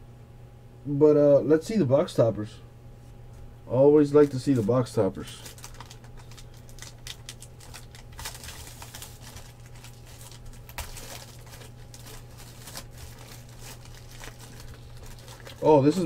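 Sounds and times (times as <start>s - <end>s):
low steady hum: 0.0s - 16.0s
crinkling wrapper: 4.0s - 16.0s.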